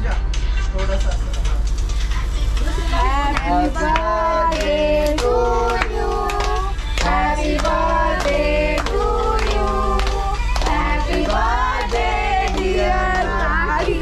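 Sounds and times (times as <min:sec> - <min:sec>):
group singing birthday song: 0:02.0 - 0:14.0
people clapping along: 0:03.0 - 0:14.0.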